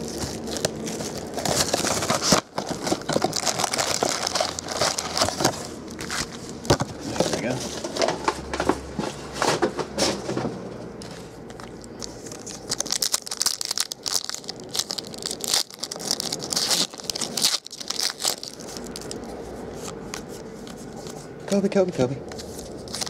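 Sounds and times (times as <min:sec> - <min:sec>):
foil wrapper crinkling and tearing: 0:00.0 - 0:07.6, 0:11.5 - 0:19.3, 0:22.6 - 0:23.0.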